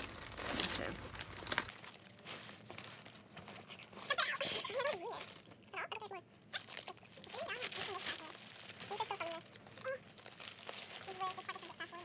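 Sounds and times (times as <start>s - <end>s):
albums rustling and clicking: 0.0s - 4.2s.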